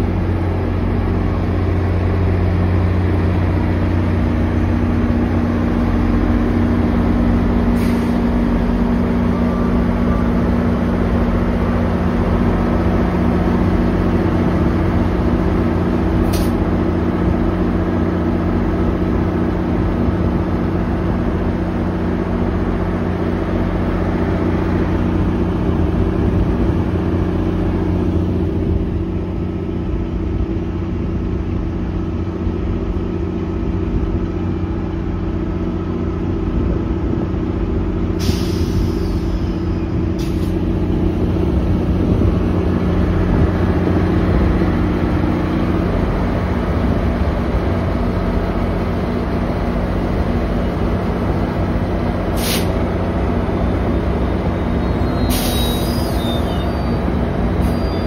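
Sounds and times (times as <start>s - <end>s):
diesel locomotive idling: 0.0s - 58.0s
air hissing: 38.2s - 39.6s, 52.4s - 52.8s, 55.2s - 56.9s.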